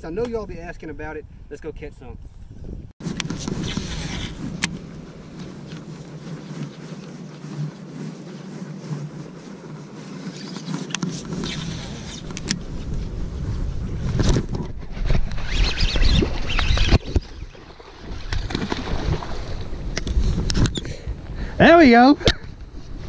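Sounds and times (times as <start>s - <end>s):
fishing reel being cranked: 15.3s - 17.2s.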